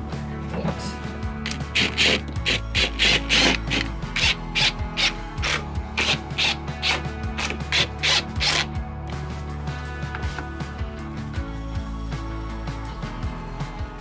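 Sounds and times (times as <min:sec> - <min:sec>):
background music: 0:00.0 - 0:14.0
cordless driver driving screws: 0:01.5 - 0:08.7.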